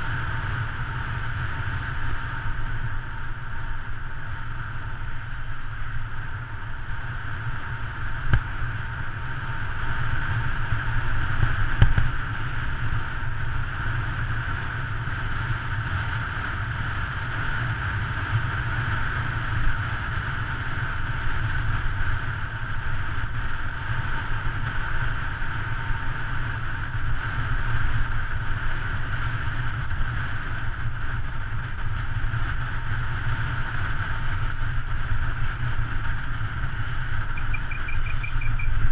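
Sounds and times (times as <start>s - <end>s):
wind buffeting microphone: 26.6s - 38.9s.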